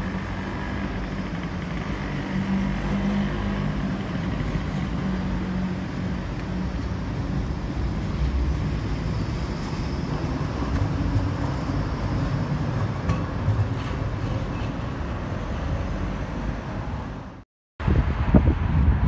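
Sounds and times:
street traffic: 0:00.0 - 0:19.0
tram rumbling: 0:00.0 - 0:19.0
wind on microphone: 0:17.8 - 0:19.0.

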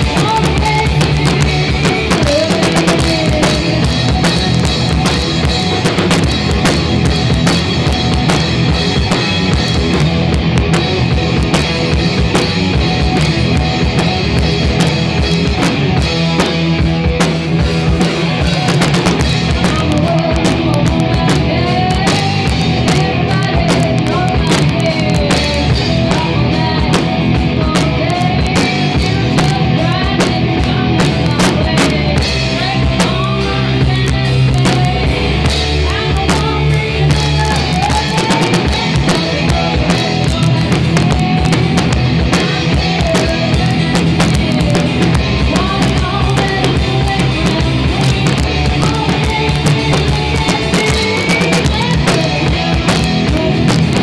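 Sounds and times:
drum kit hitting: 0:00.0 - 0:54.0
heavy metal band playing: 0:00.0 - 0:54.0.

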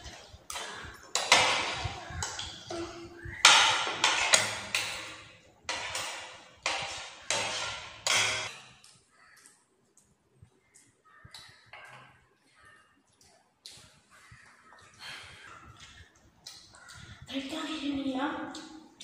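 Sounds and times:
cutlery clinking on ceramic plates: 0:00.0 - 0:08.8.

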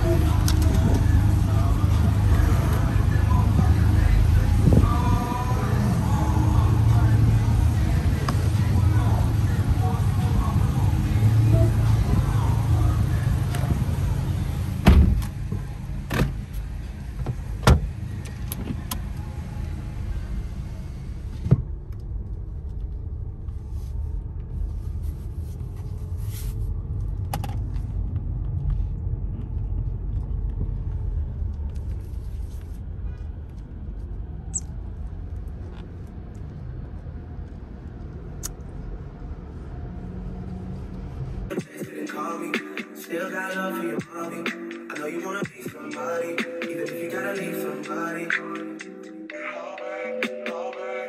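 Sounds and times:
car cabin hum: 0:00.0 - 0:32.7.

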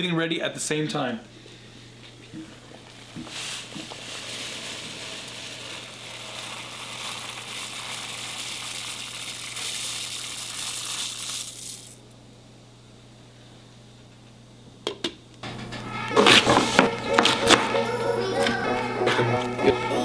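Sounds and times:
rice pouring into boiling water: 0:02.6 - 0:12.0.

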